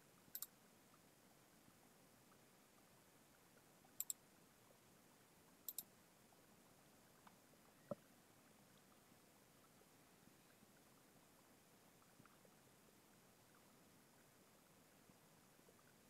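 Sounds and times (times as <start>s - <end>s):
sharp double clicks: 0.3s - 0.5s, 5.7s - 5.9s.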